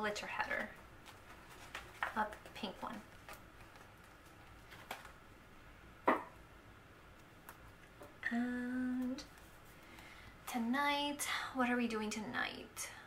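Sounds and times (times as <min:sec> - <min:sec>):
fingers tapping and clicking on paper: 0:00.5 - 0:05.1
woman humming: 0:08.2 - 0:09.3.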